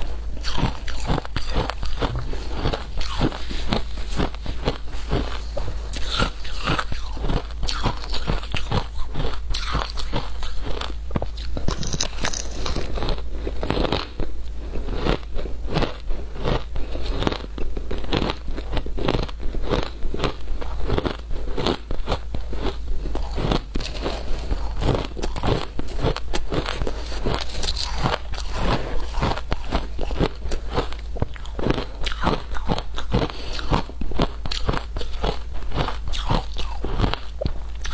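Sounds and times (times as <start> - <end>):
shaved ice crunching in mouth: 0.4 - 14.1, 15.8 - 37.9.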